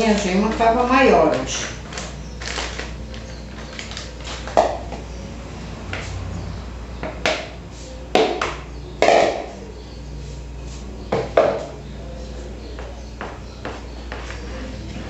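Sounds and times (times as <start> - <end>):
utensils knocking plastic bowl: 8.1 - 9.5.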